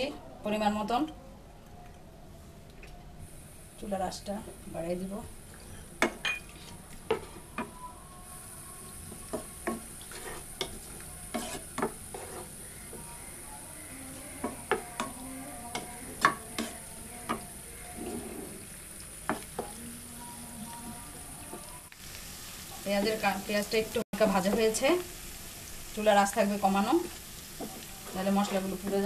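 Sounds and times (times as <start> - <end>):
onions sizzling in a pan: 3.2 - 29.0
utensil scraping a pan: 9.3 - 12.7.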